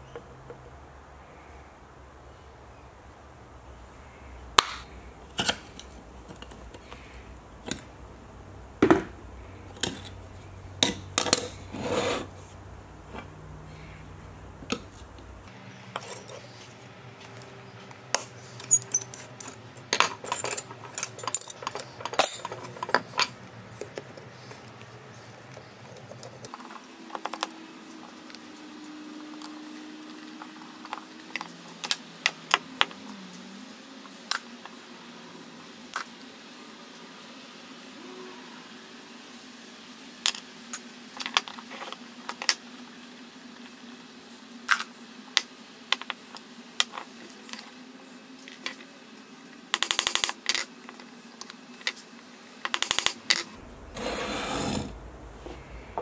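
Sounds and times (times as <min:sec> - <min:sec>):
metal parts clinking and scraping: 0:18.2 - 0:23.4.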